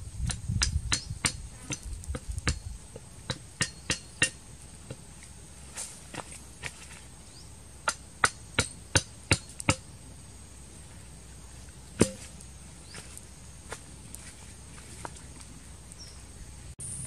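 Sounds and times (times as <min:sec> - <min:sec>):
hand chopping strikes: 0:12.0 - 0:12.4.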